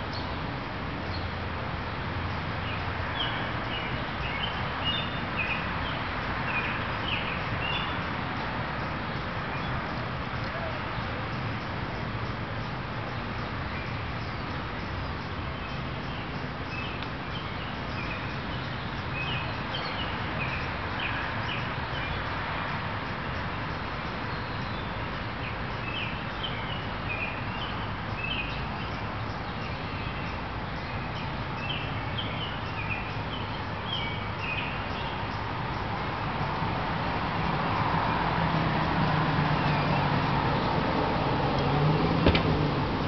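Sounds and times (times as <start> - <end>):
small birds chirping: 2.2 - 36.2.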